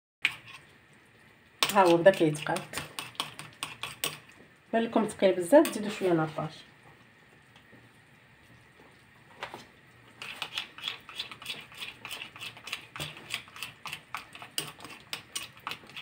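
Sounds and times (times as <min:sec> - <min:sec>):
spoon scraping ceramic bowl: 0:00.2 - 0:00.7, 0:01.6 - 0:04.2, 0:10.2 - 0:16.0.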